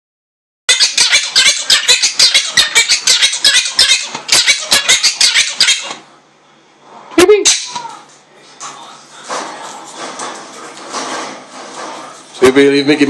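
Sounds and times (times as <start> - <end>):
parrot squawking: 0.7 - 6.0.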